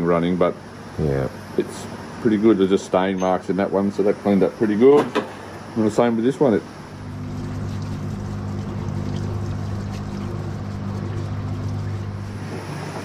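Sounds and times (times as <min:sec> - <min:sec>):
motor humming: 0:06.7 - 0:13.0.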